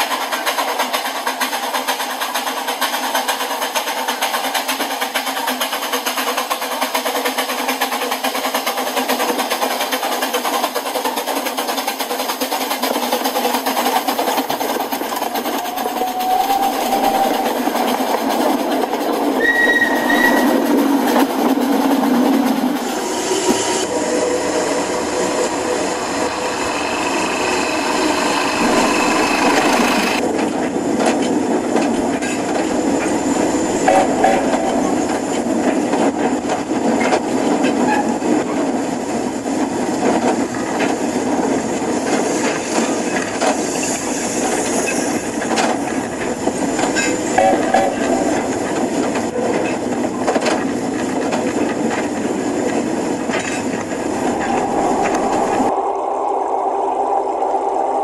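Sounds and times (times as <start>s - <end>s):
model trains rolling on track: 0.0s - 58.0s
track clicks: 47.4s - 49.2s.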